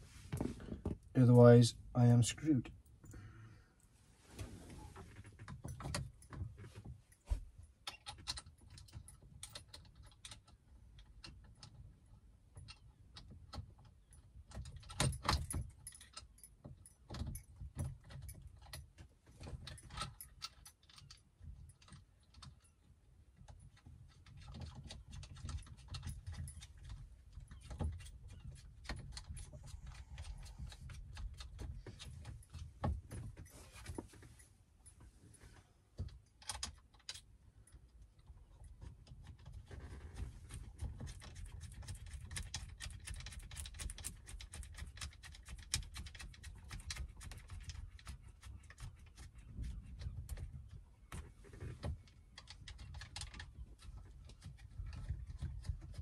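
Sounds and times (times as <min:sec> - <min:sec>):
small metal clicks and clinks: 0:07.8 - 0:11.8, 0:12.5 - 0:34.4.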